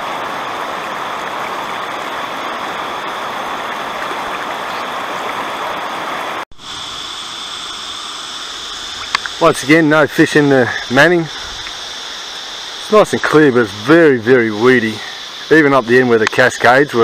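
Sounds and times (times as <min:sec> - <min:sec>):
calm water: 0:00.0 - 0:17.0
water rushing over rocks: 0:00.0 - 0:17.0
insect trill: 0:06.6 - 0:17.0.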